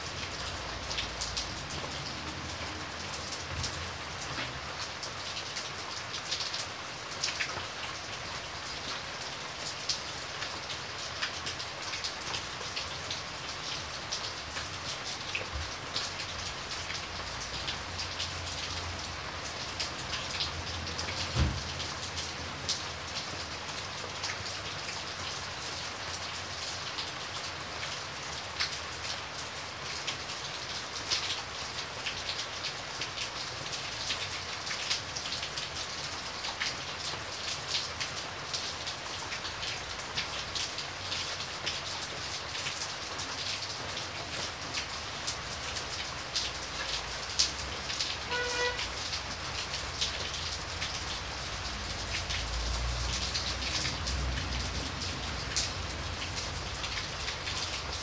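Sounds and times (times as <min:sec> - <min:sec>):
rain drops ticking: 0:00.0 - 0:58.0
heavy thump: 0:21.4 - 0:21.6.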